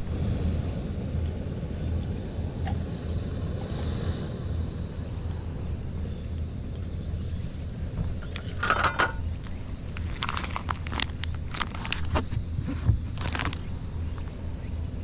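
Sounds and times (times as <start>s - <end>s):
gas stove burner rumble: 0.0s - 15.0s
plastic pouch crinkling: 9.4s - 13.8s.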